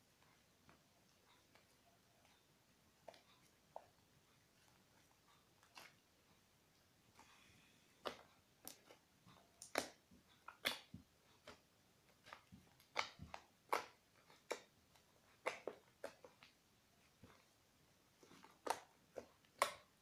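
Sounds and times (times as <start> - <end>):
slime squelching and popping: 8.0 - 20.0.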